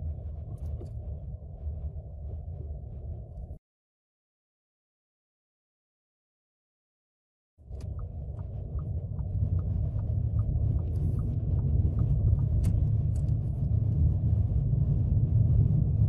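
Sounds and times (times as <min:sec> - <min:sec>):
car engine and tyre rumble: 0:00.0 - 0:03.6, 0:07.6 - 0:16.0
turn signal ticking: 0:07.8 - 0:13.3.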